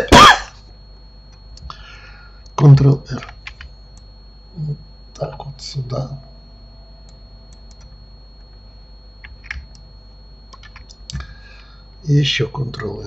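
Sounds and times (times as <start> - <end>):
faint steady hum: 0.0 - 13.0
computer keyboard clicks: 3.2 - 4.1, 9.2 - 9.8, 10.5 - 11.2.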